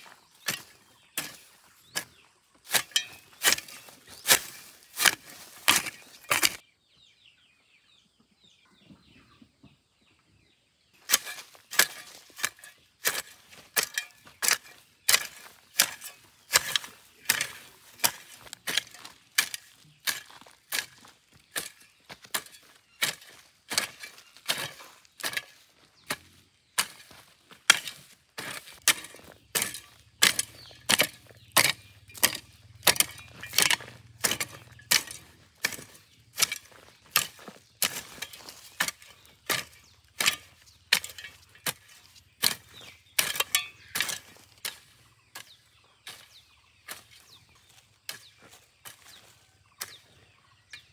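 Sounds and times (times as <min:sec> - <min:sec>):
blade chopping rhythmically: 0:28.9 - 0:38.0.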